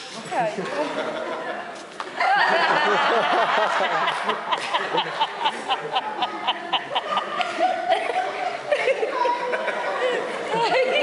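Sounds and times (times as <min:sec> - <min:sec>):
audience laughter: 0:00.7 - 0:11.0.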